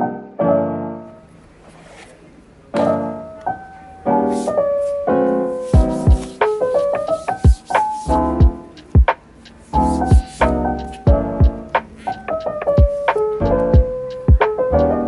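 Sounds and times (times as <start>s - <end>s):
piano music: 0.0s - 1.5s, 2.5s - 15.0s
deep low thumps: 8.2s - 9.1s, 9.9s - 11.7s, 13.8s - 14.0s.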